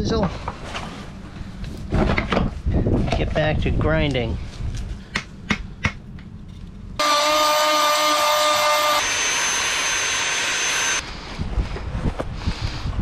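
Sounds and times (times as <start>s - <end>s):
wind noise on microphone: 1.6s - 5.0s, 11.0s - 13.0s
electric grinder grinding fibreglass: 7.0s - 11.0s.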